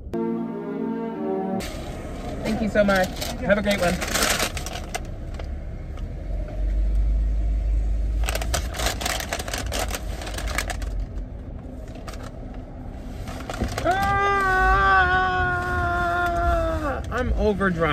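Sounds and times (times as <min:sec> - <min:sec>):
low rumble: 0:00.0 - 0:13.8
paper bag crinkling: 0:02.2 - 0:05.2, 0:08.2 - 0:11.2.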